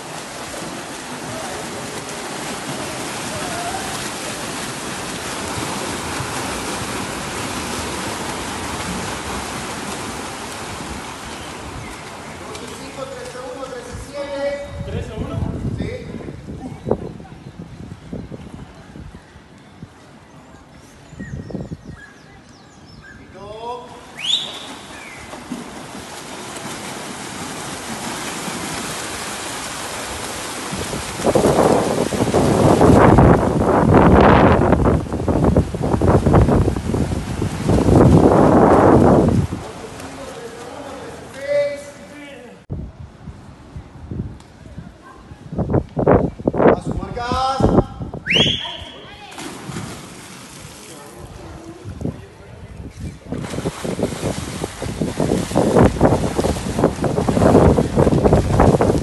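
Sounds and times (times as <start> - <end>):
swimmers splashing: 0.0 - 14.5, 23.2 - 42.6, 48.3 - 59.0.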